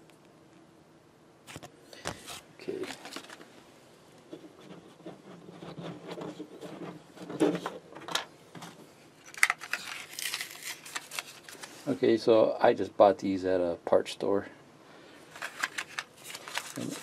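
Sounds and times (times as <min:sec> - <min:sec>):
crackling rustle: 0:08.6 - 0:12.1, 0:15.3 - 0:17.0.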